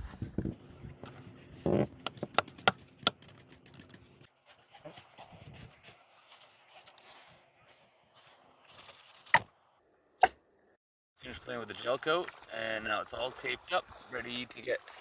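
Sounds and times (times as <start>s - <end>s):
brush sweeping over deck: 0.0s - 2.0s, 3.4s - 8.6s.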